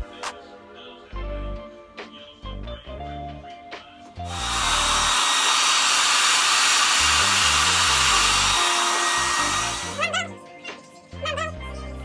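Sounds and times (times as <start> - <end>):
faint background music bass: 0.0 - 4.9, 9.2 - 12.0
hair dryer running: 4.2 - 10.1.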